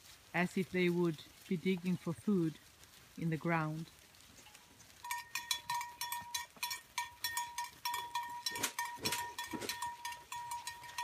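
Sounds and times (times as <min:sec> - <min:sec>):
bell ringing: 0:05.1 - 0:11.0.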